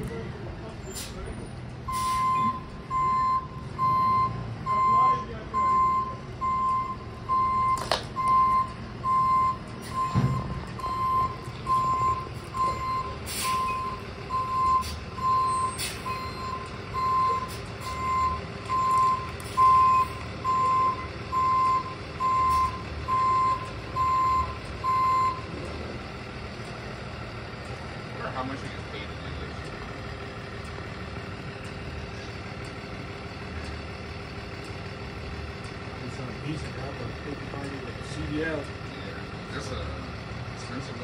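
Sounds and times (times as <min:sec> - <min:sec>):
truck engine running: 0:00.0 - 0:41.0
truck back-up alarm beeping: 0:00.9 - 0:27.8.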